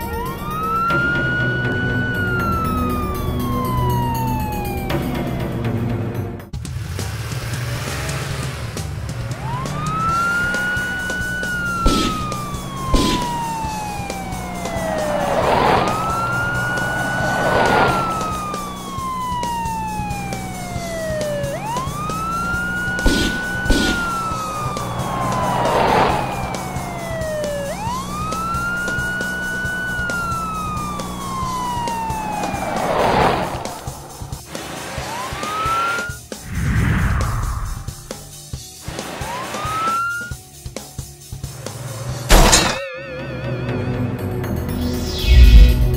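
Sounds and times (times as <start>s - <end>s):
cartoon police siren wailing: 0.0s - 5.7s, 9.3s - 34.4s, 35.0s - 36.2s, 39.1s - 40.4s, 42.3s - 45.9s
background music with drone: 0.0s - 45.9s
whooshing sweeps: 14.6s - 18.8s, 32.3s - 35.2s, 36.4s - 38.4s, 45.0s - 45.9s.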